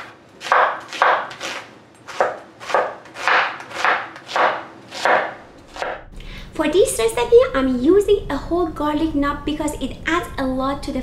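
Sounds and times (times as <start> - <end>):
knife chopping onion: 0.0 - 6.0.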